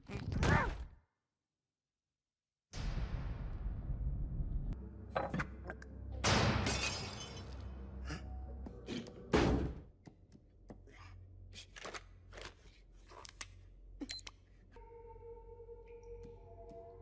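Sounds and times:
loud cartoon thump: 9.3 - 9.8.

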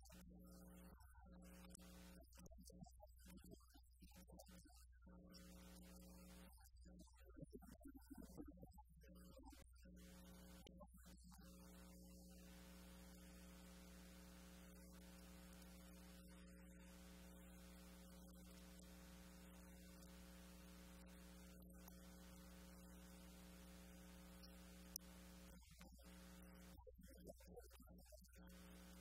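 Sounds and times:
low electrical hum: 11.4 - 26.7.

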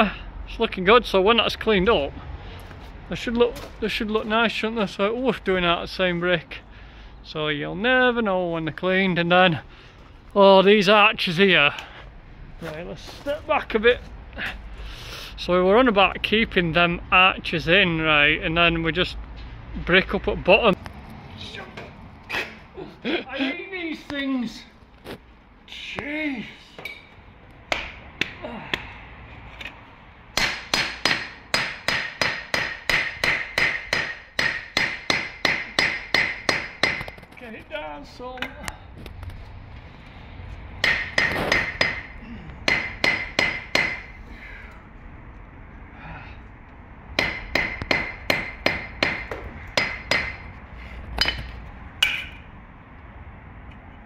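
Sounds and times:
hammer knocking on concrete: 40.8 - 44.1, 47.2 - 50.5.

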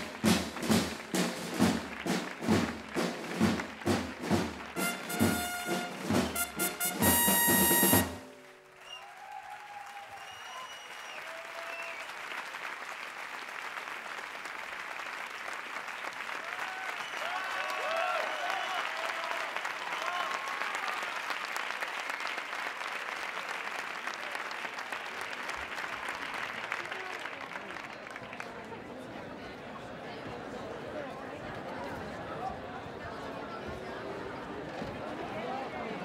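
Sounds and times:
audience applauding: 0.0 - 29.4
shouts and cheers: 8.8 - 12.1, 16.4 - 21.3.

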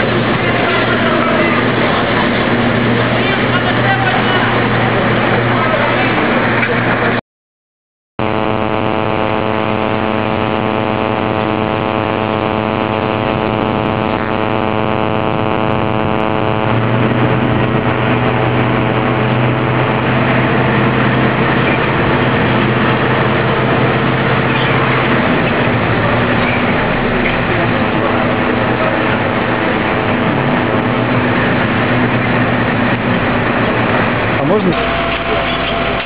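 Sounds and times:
heavy vehicle engine idling: 16.7 - 36.0.

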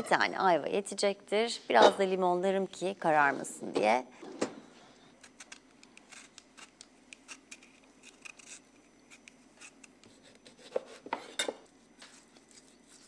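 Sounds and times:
vegetable peeler scraping: 5.2 - 11.4, 12.0 - 13.0.

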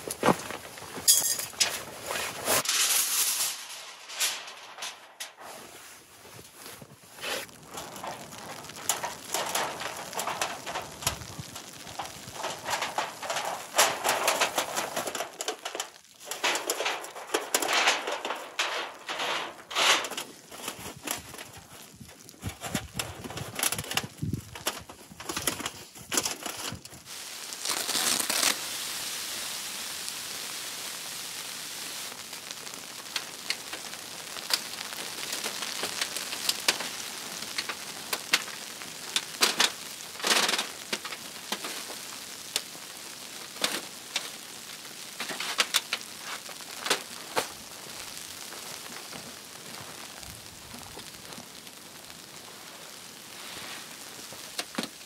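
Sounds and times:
rustling and crunching in snow: 0.0 - 55.0
steady hiss: 0.0 - 55.0
metal clinks: 1.0 - 1.7.

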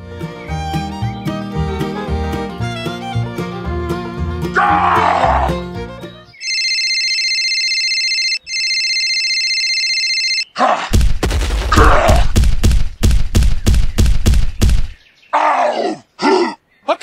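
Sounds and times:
electronic phone ringtone: 6.4 - 10.5
rapid heavy thuds: 10.9 - 15.0.

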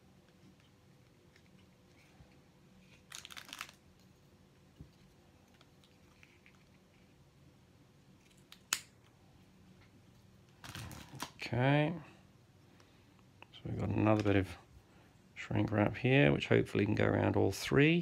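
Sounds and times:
crinkly rustling: 0.3 - 7.2, 10.1 - 11.4.

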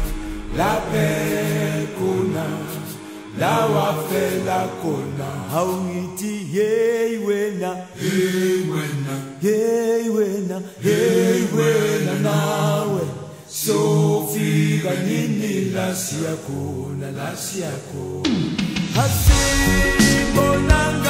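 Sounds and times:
group of voices chanting in harmony: 0.0 - 21.0.

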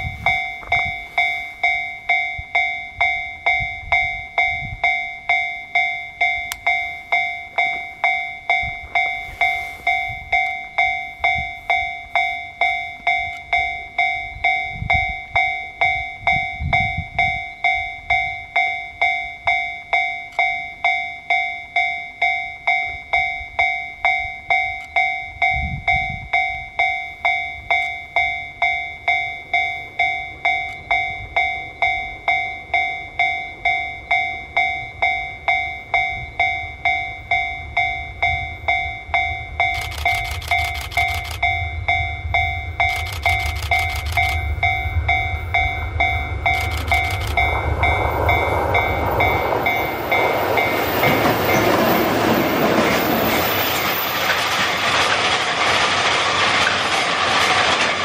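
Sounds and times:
level crossing alarm bell ringing: 0.0 - 54.6
low rumbling: 37.4 - 58.0.

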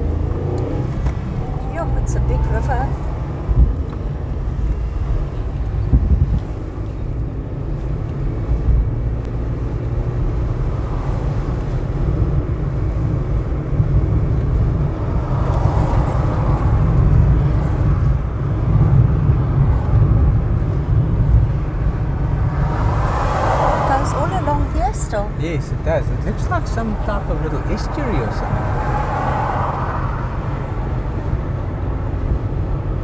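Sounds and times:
car engine rumble: 0.0 - 33.0
wind noise: 0.0 - 33.0.

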